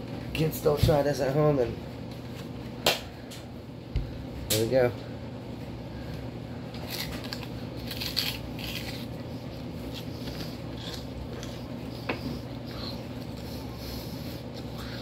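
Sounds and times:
steady low hum: 0.0s - 15.0s
man chewing raw onion: 6.6s - 15.0s.

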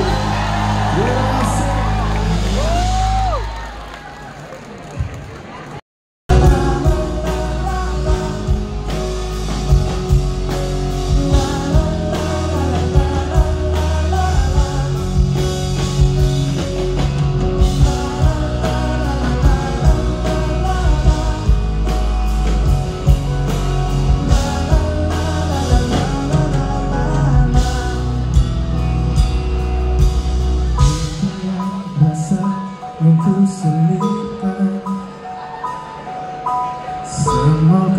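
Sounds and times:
person singing into microphone: 6.3s - 9.2s, 11.0s - 15.6s, 17.6s - 22.0s, 24.0s - 28.6s, 37.0s - 37.9s
heavy bass line: 6.3s - 31.7s.

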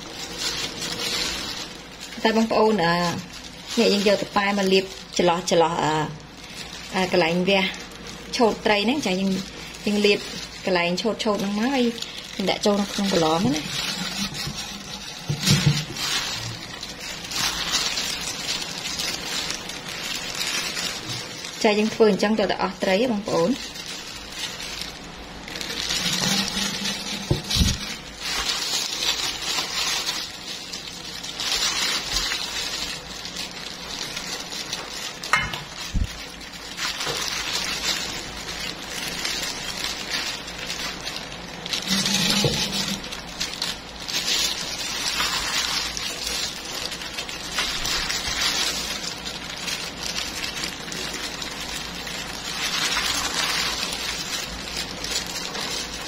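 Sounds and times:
plastic rustling: 0.0s - 56.0s
wet squishing: 0.0s - 56.0s.

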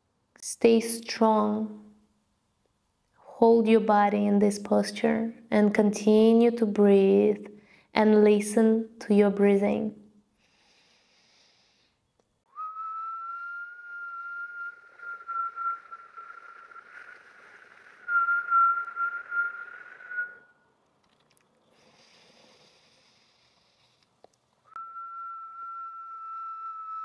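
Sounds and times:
soft breath in: 7.6s - 7.9s, 10.4s - 12.0s, 21.7s - 24.1s
woman whistling breath out: 12.5s - 20.6s, 24.7s - 27.0s.

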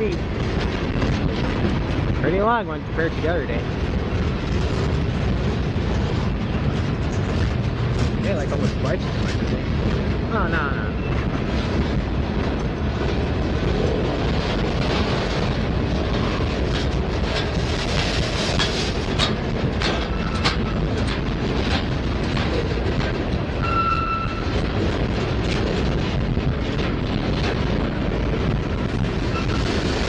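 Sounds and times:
steel wheels rumbling on rail: 0.0s - 30.0s
wheels clacking over rail joints: 11.1s - 30.0s
high wheel squeal: 23.6s - 24.5s.

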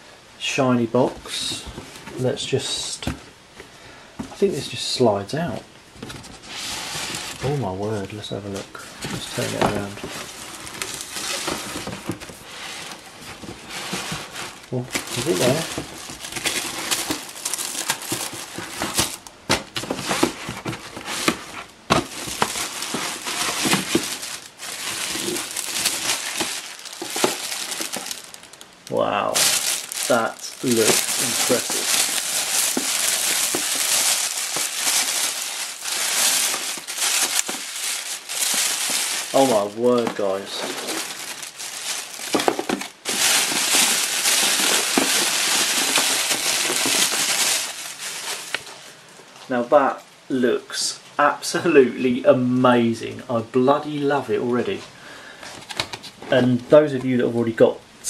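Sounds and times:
cardboard scraping: 6.0s - 7.6s, 8.8s - 28.5s, 29.3s - 48.7s
plastic bag crinkling: 8.6s - 48.9s.

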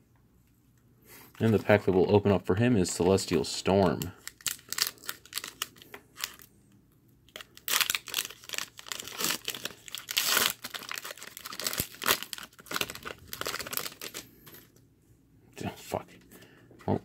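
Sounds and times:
foil wrapper crinkling and tearing: 3.8s - 6.5s, 7.3s - 14.3s.

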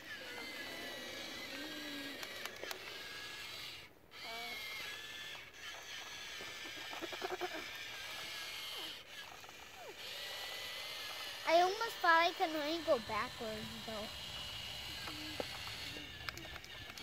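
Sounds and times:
toy truck motor whining: 0.0s - 17.0s
rapid clicking: 11.0s - 17.0s.

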